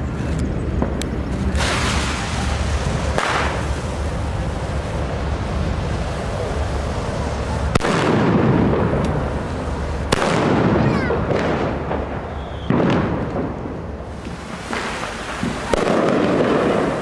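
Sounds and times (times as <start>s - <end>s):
firecracker bangs with echo: 0.8s - 4.0s, 7.7s - 17.0s.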